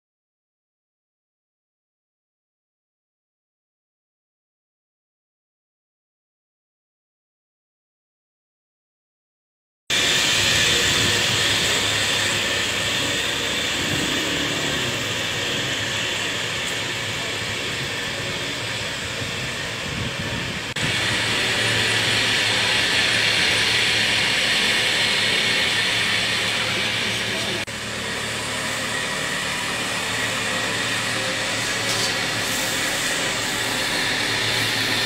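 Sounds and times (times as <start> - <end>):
truck engine and pump running: 9.9 - 35.0
hose spray hissing: 30.9 - 35.0.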